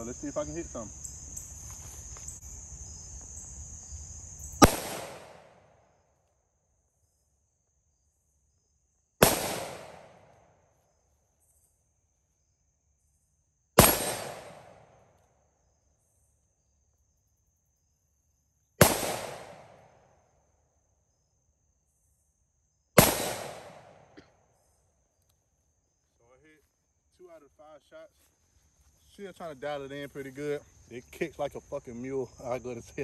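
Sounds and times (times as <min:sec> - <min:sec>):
faint insect drone: 0:00.0 - 0:33.0
revolver shots: 0:04.6 - 0:05.5.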